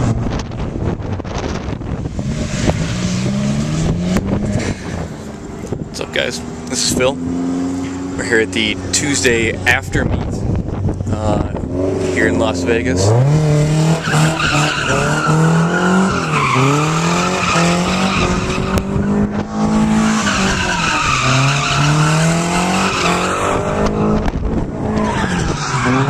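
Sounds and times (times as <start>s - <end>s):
car engine revving high: 0.0s - 26.0s
tyres squealing: 19.9s - 23.4s.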